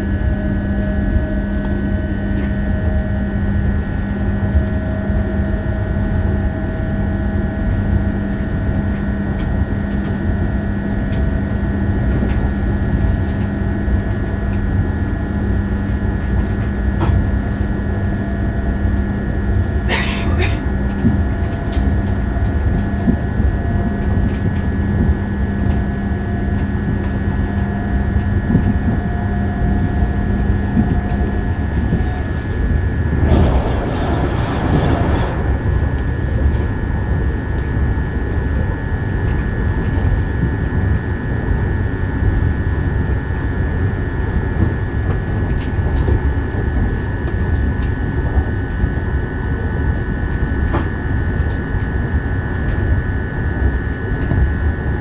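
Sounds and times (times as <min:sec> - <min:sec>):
low hum: 0:16.2 - 0:41.0
high whine: 0:28.4 - 0:39.5
train wheels rumbling on rails: 0:28.4 - 0:40.9
train passing close: 0:31.9 - 0:37.8.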